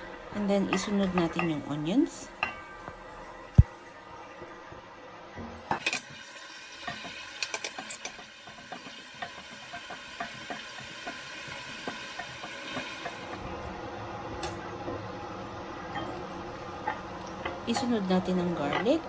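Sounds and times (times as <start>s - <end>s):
onions sizzling in hot oil: 5.7s - 13.9s
spatula scraping and tapping pot: 6.8s - 13.2s.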